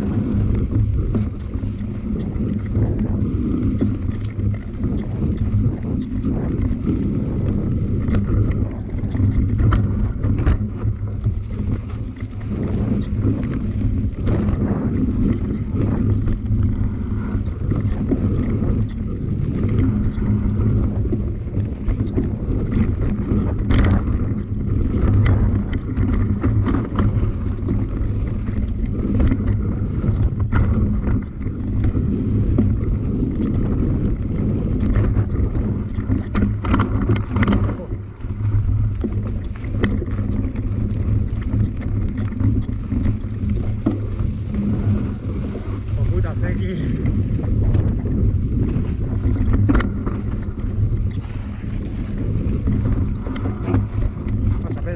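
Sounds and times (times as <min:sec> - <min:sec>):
wind on microphone: 0:00.0 - 0:54.9
low ride rumble: 0:28.4 - 0:54.9.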